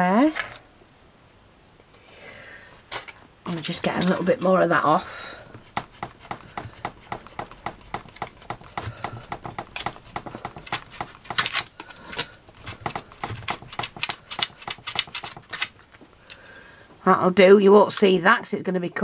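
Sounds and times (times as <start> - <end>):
craft knife cutting polystyrene foam: 5.5 - 11.7, 12.6 - 15.7.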